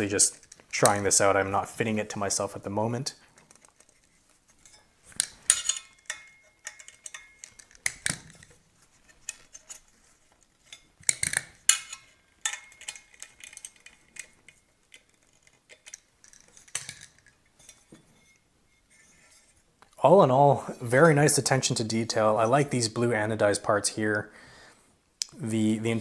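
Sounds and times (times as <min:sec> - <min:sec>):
metallic clicks of rifle handling: 0:03.4 - 0:17.8.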